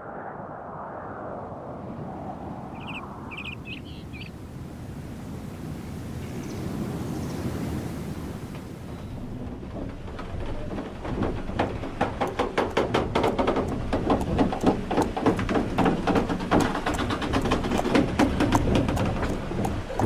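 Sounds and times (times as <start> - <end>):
steady low rumble: 0.0 - 5.4
hooves clopping on wooden planks: 9.2 - 20.0.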